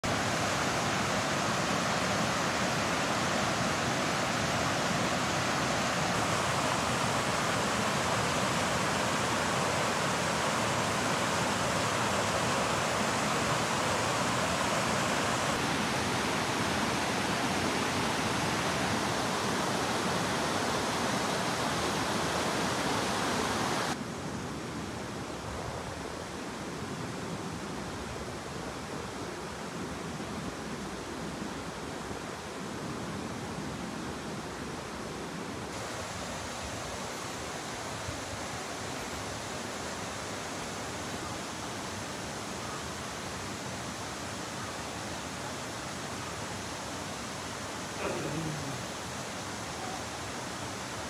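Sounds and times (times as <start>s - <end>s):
water rushing over rocks: 0.0s - 24.0s, 35.7s - 51.0s.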